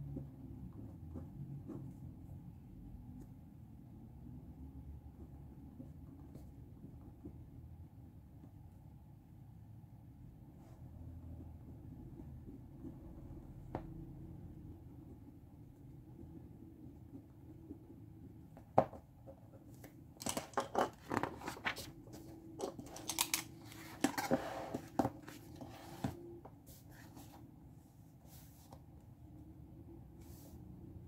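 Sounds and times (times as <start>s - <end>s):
paper crinkling and rustling: 20.2s - 24.5s.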